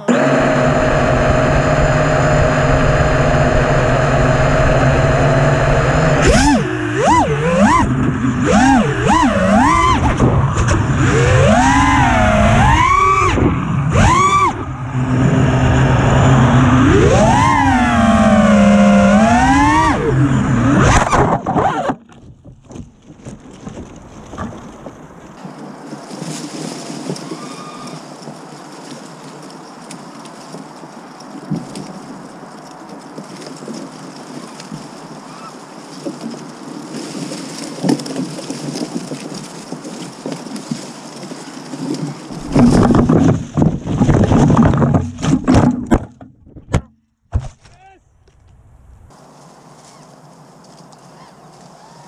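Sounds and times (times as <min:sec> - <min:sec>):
drone motors idling: 0:00.0 - 0:10.1
drone motors whining: 0:00.0 - 0:22.1
propellers striking branches: 0:00.0 - 0:51.8
rustling of dry leaves: 0:15.4 - 0:45.8, 0:47.5 - 0:52.0.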